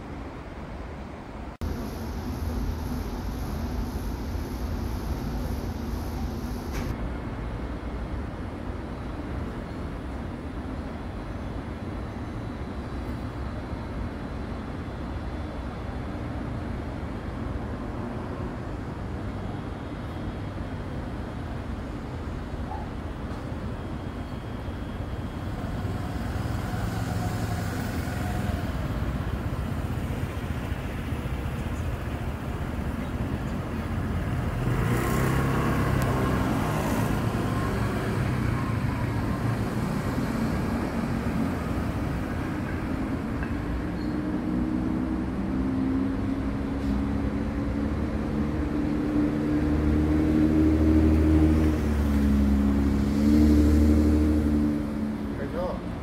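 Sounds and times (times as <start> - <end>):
engine hum: 0.0 - 56.0
road traffic rumble: 0.0 - 56.0
vehicle passing: 25.5 - 31.4, 33.7 - 43.3, 44.3 - 55.9.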